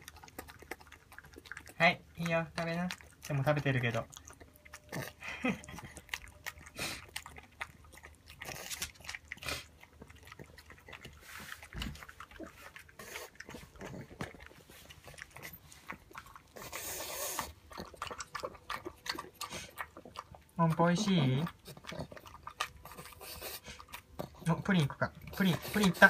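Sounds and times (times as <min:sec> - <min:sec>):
dog eating with wet smacks: 0:00.0 - 0:26.0
dog breathing: 0:10.4 - 0:18.2, 0:19.2 - 0:20.2, 0:21.6 - 0:24.5.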